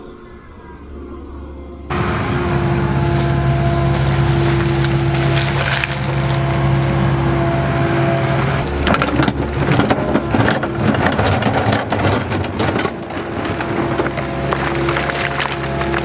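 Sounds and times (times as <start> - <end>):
hydraulics whining: 0.0 - 16.0
excavator diesel engine running: 1.9 - 16.0
shale slabs clattering: 3.0 - 7.1, 8.5 - 16.0.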